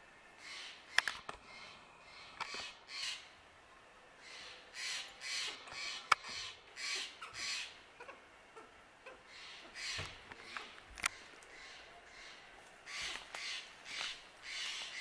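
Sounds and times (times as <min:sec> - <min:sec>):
bird giving harsh raspy calls: 0:00.4 - 0:03.4, 0:04.2 - 0:15.0
sharp clicks: 0:00.9 - 0:01.4.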